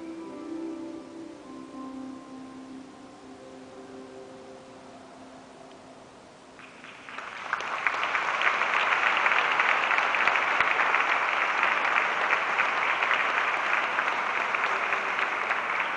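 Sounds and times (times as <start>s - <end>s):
large audience applauding: 6.6s - 15.9s.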